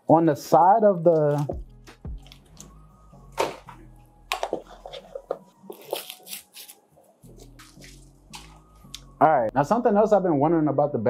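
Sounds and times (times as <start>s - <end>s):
plastic wrapping crinkling: 4.4s - 8.9s
plastic ripping: 5.7s - 6.8s.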